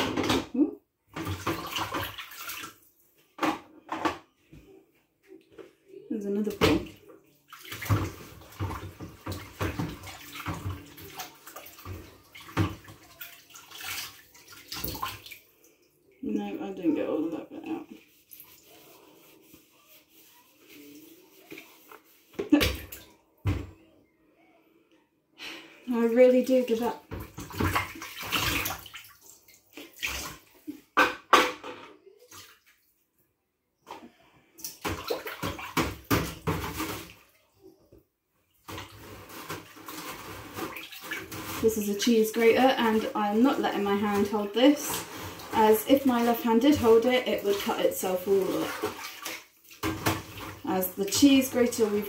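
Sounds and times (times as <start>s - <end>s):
water splashing in a steel sink: 0.0s - 4.1s, 6.2s - 23.7s, 26.0s - 32.8s, 34.4s - 37.5s, 38.5s - 52.0s
hand scrubbing a dish: 16.4s - 22.8s, 38.7s - 52.0s.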